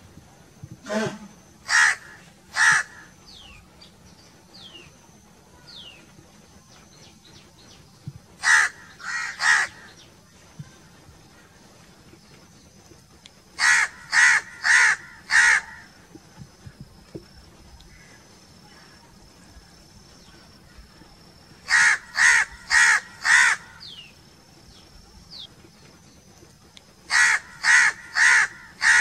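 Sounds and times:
crows cawing: 0:01.6 - 0:03.1, 0:08.4 - 0:09.9, 0:13.6 - 0:15.9, 0:21.7 - 0:23.8, 0:27.1 - 0:29.0.

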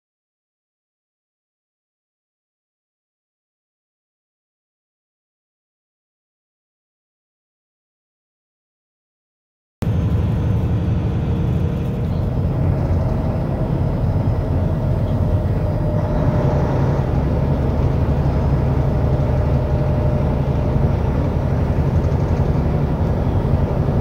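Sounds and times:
truck engine drone: 0:09.8 - 0:24.0.

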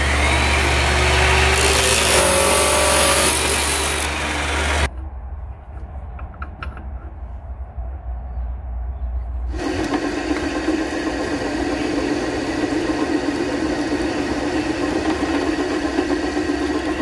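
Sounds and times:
chop saw cutting steel: 0:00.0 - 0:04.9, 0:09.6 - 0:17.0.

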